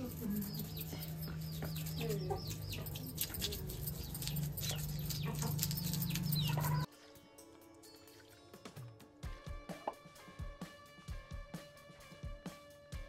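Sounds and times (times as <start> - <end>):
birds chirping: 0.0 - 6.9
knife scraping fish scales: 0.0 - 6.9.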